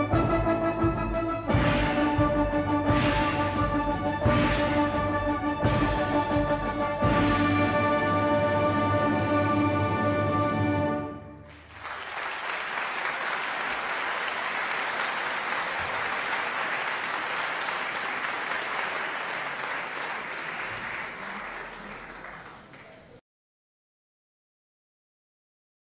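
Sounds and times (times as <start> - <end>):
audience applauding: 11.4 - 23.2.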